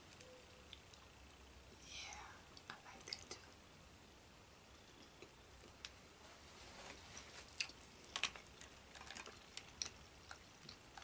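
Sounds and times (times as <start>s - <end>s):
crawfish shells cracking: 7.5s - 11.0s.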